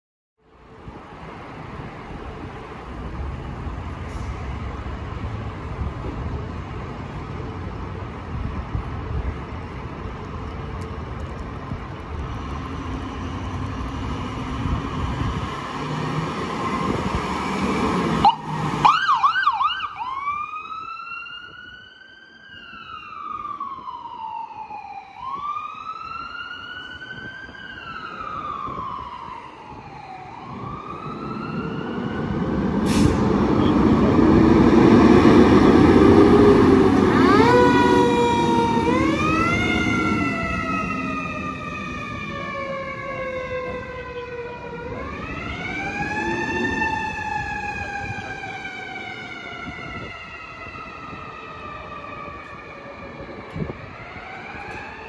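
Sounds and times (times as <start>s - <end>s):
fire engine diesel accelerating: 1.2s - 19.8s, 26.7s - 55.0s
vehicle engine rumbling: 1.6s - 18.6s, 30.6s - 44.0s
ambulance siren yelping and wailing: 17.8s - 32.8s, 33.6s - 55.0s.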